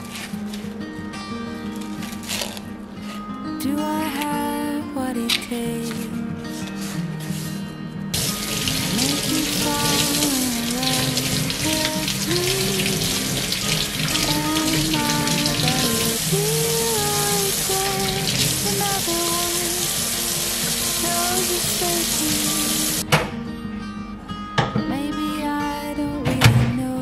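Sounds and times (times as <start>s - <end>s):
background music: 0.0s - 27.0s
faucet water splashing in sink: 8.2s - 23.0s.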